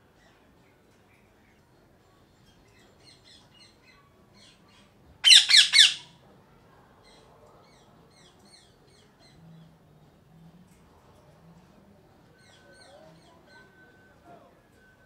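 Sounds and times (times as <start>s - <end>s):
parakeet squawking: 5.2s - 6.1s
faint bird chirps: 12.2s - 14.2s.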